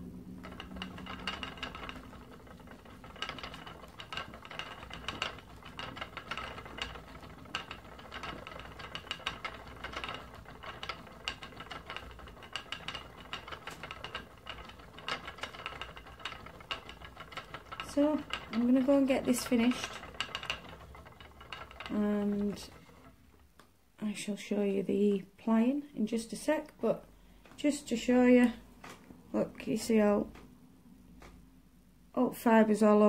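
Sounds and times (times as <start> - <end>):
spinning wheel clicking: 0.0 - 23.1.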